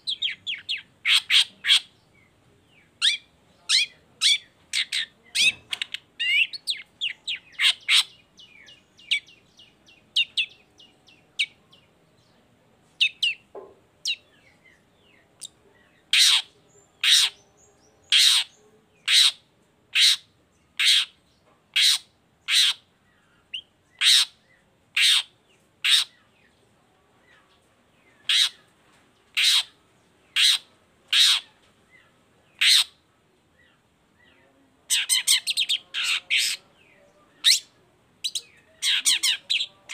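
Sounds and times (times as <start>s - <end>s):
shrike chattering and harsh calls: 0.1s - 1.9s, 3.0s - 9.4s, 16.1s - 17.4s, 18.0s - 22.9s, 23.6s - 26.2s, 28.2s - 28.7s, 29.3s - 31.6s, 32.6s - 33.0s, 34.9s - 36.8s, 37.4s - 39.9s.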